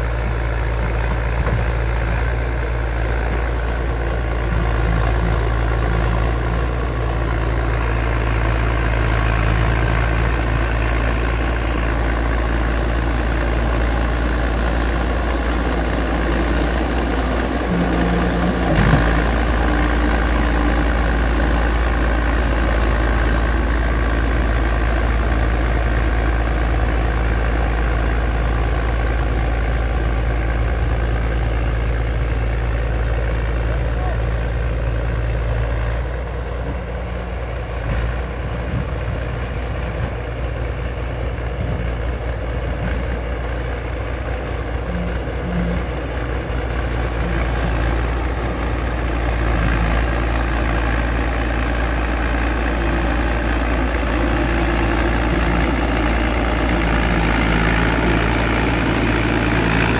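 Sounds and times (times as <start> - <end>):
bulldozer diesel engine running: 0.0 - 59.9.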